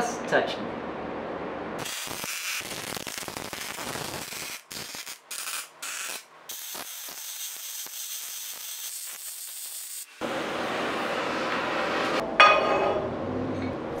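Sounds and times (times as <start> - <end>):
welder arc crackling hiss: 1.8 - 10.3.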